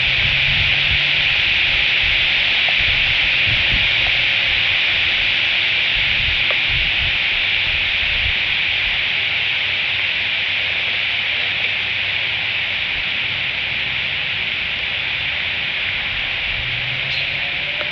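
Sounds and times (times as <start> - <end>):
rain falling on leaves: 0.0 - 17.9.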